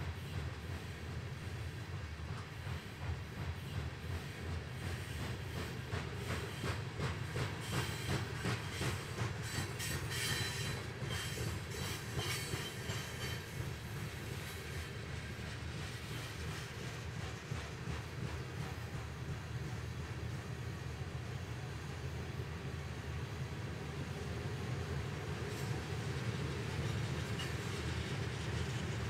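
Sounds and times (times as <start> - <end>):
freight train rumble: 0.0 - 29.0
faint high wheel squeal: 7.6 - 13.7, 26.7 - 29.0.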